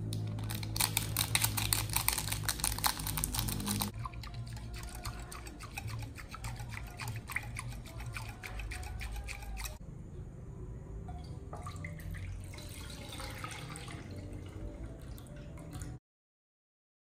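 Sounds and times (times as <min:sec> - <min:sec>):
whisk clicking against glass bowl: 0:04.0 - 0:09.8.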